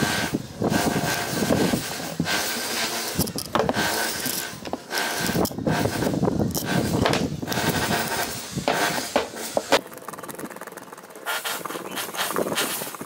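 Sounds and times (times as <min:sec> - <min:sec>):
rubbing and scraping on metal housing: 0:00.1 - 0:09.8.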